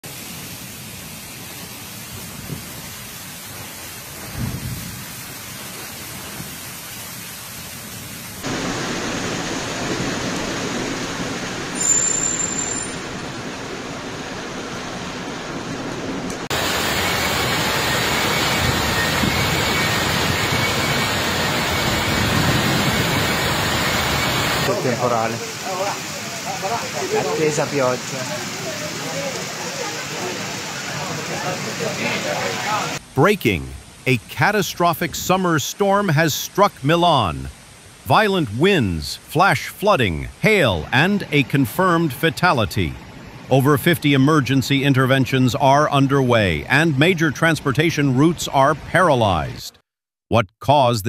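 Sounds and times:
heavy rain: 0.0 - 47.6
wind: 0.0 - 49.8.

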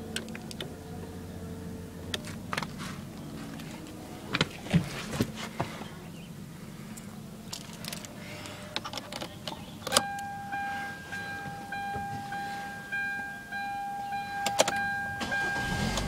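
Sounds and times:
car warning chime: 9.6 - 16.0.

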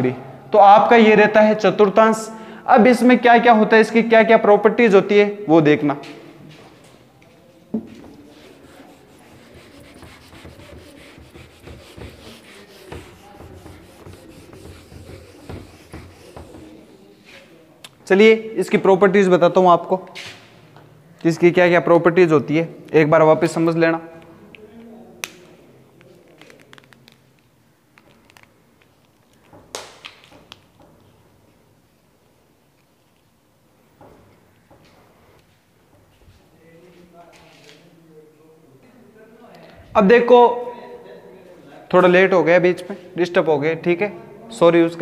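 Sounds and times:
duster rubbing on whiteboard: 8.0 - 17.5
marker clicks and taps: 12.9 - 16.7.

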